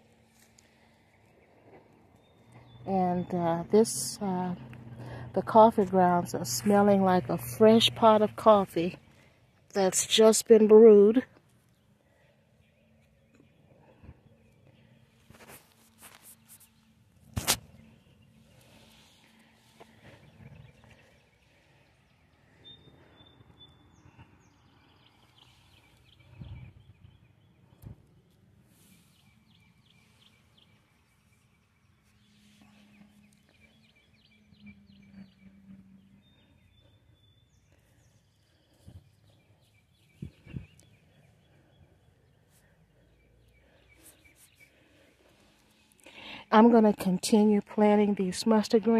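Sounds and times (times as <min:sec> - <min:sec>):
distant bird whistles and chirping: 0:17.6 - 0:46.5.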